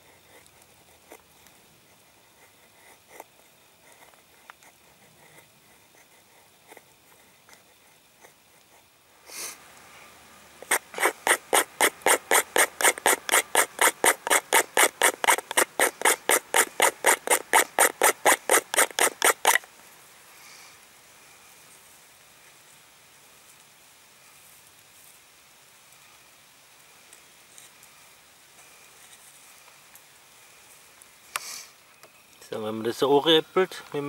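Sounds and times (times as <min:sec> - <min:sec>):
knife scraping wooden stick: 0:10.6 - 0:19.7.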